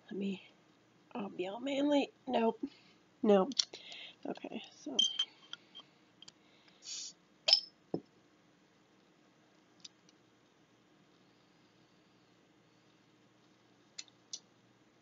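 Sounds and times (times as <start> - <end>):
gas hissing from bottle: 6.8 - 7.2
bottle cap metallic click: 7.5 - 7.7.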